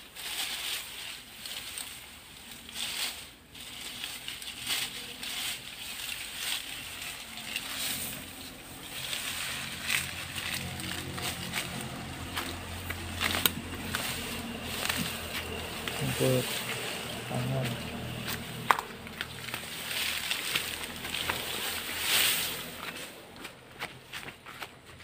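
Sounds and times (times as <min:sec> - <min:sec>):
dry leaves rustling and crackling: 0:00.0 - 0:25.0
low motor hum: 0:03.5 - 0:25.0
stalks snapping: 0:03.7 - 0:23.0.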